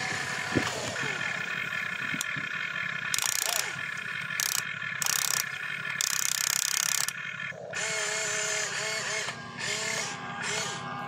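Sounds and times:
electric gear motors ratcheting buzz: 3.0 - 3.6, 4.2 - 10.8.

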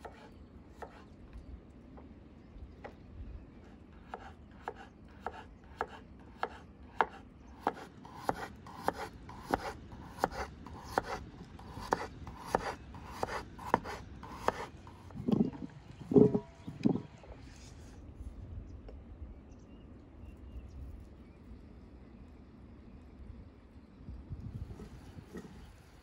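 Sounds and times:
knife chopping on wooden board: 0.0 - 1.0, 4.0 - 17.0.

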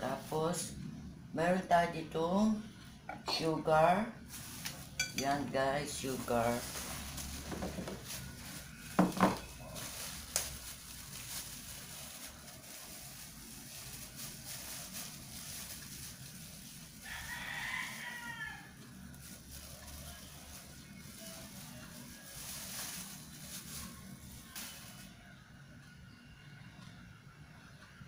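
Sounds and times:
glass bowl knocking on counter: 9.0 - 9.4
rooster crowing: 17.0 - 18.8.

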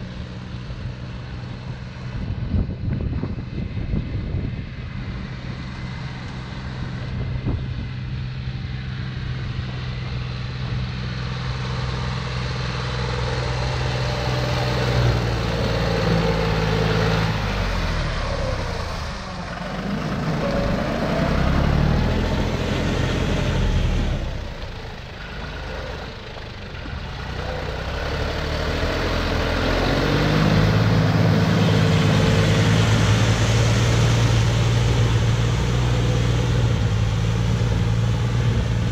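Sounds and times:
tractor diesel engine under load: 0.0 - 38.9
tiller churning wet mud: 10.0 - 38.9.

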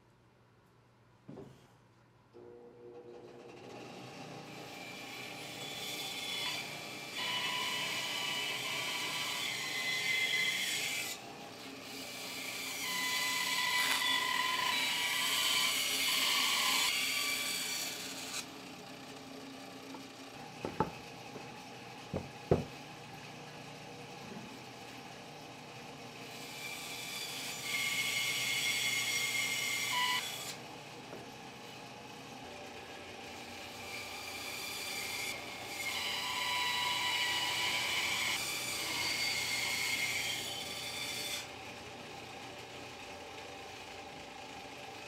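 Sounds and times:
wood lathe running: 3.4 - 21.4.

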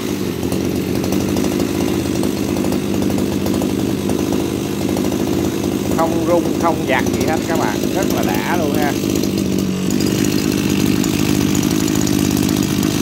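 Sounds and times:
brush cutter engine running: 0.0 - 13.0.

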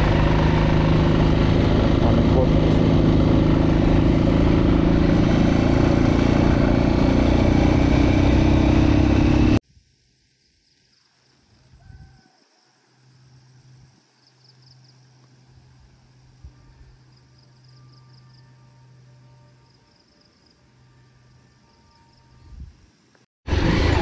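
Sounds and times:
motorcycle engine running: 0.0 - 9.6
wind rumble on microphone: 11.6 - 12.3, 22.4 - 22.9.

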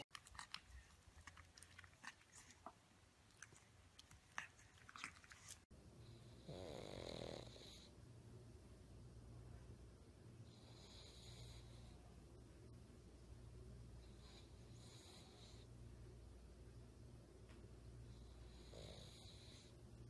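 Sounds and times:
puppy licking and nibbling: 0.0 - 5.7
dog snoring: 6.1 - 7.9, 10.5 - 11.9, 14.1 - 15.7, 18.1 - 19.7.

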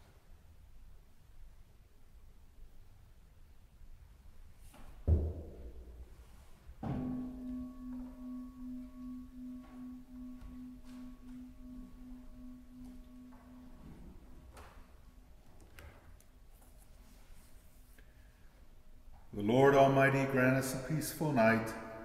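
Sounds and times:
pipe organ sustained note: 6.9 - 15.4.

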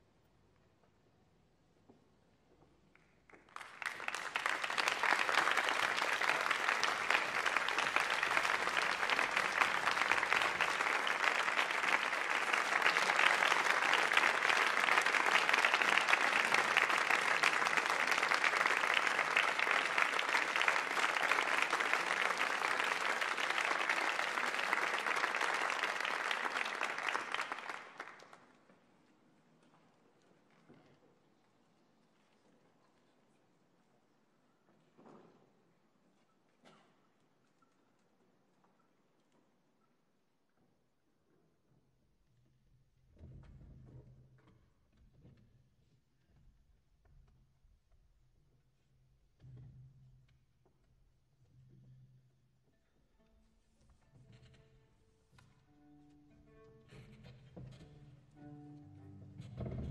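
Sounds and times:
audience applause: 3.3 - 28.5.

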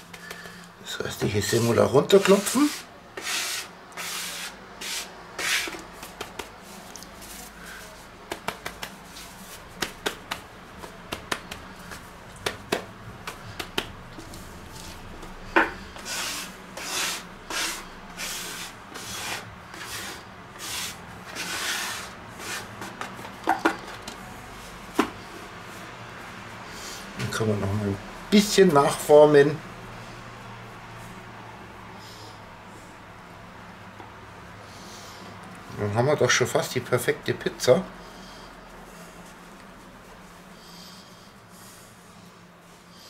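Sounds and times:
scraper rubbing on wooden board: 2.2 - 6.2, 16.0 - 22.9.

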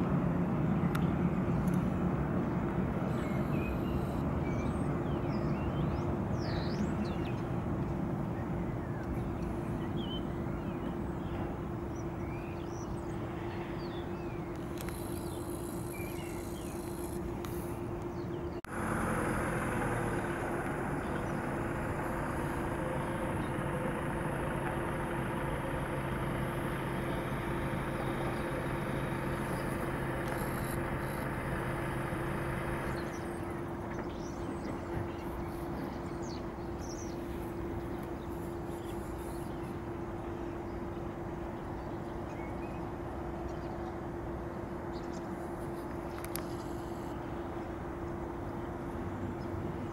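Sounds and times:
jet airliner droning: 0.0 - 49.9
low engine tone: 0.0 - 49.9
high whine: 14.3 - 40.0.

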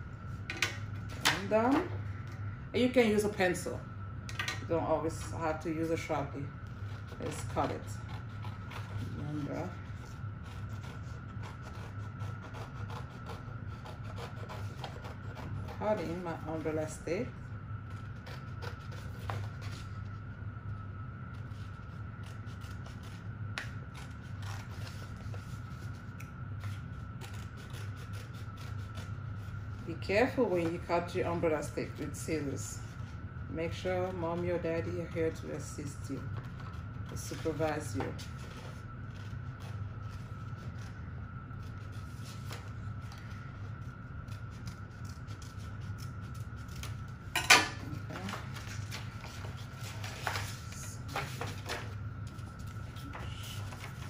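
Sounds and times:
steady low hum: 0.0 - 54.0
paper rustling: 48.1 - 54.0.

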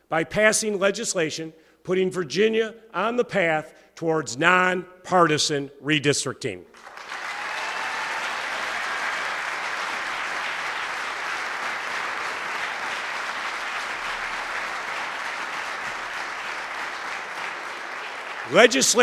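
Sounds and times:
audience applauding: 6.8 - 19.0.

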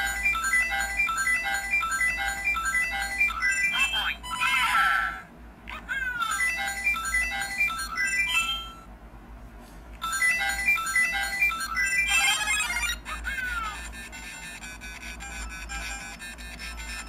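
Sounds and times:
electronic game beep tunes: 0.0 - 4.6, 6.2 - 8.9, 10.0 - 13.0.

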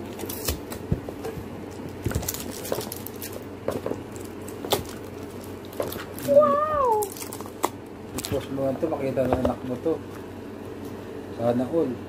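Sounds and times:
cardboard taps clicks and rustles: 9.2 - 9.7.

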